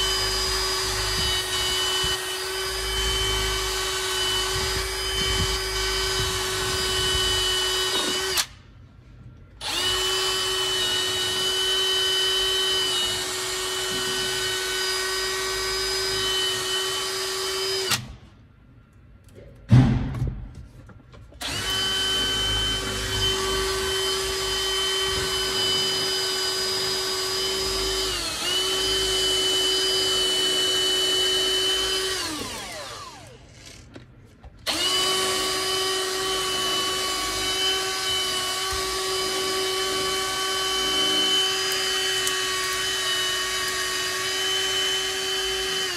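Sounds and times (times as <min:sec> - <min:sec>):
power tool motor running: 0:00.0 - 0:08.6, 0:09.6 - 0:18.0, 0:21.4 - 0:33.8, 0:34.7 - 0:45.9
sharp knock: 0:19.7 - 0:20.5.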